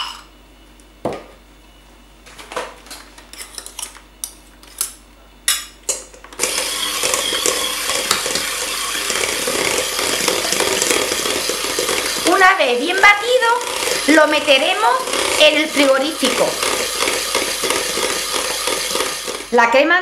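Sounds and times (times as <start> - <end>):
electric hand mixer whirring: 6.3 - 19.7.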